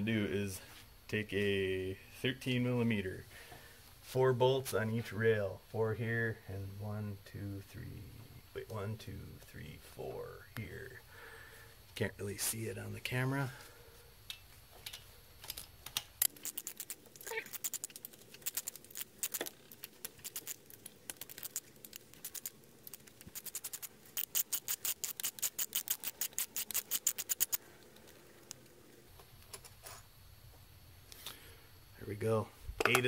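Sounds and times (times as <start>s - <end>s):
hand ratchet clicking: 22.2s - 27.6s.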